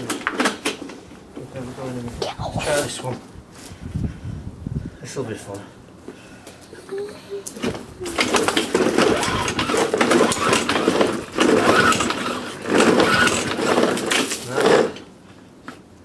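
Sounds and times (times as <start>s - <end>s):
lawnmowers rattling over stone paving: 0.0s - 1.7s, 7.5s - 15.2s.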